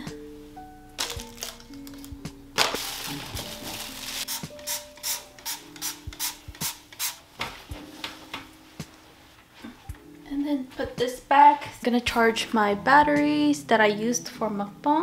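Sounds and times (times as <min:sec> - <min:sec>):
spray bottle spritzes: 0:04.2 - 0:07.2.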